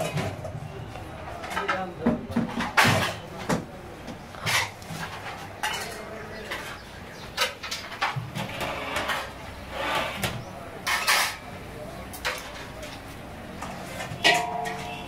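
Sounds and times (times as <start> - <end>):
metal utensils scraping a pot: 7.4 - 11.5.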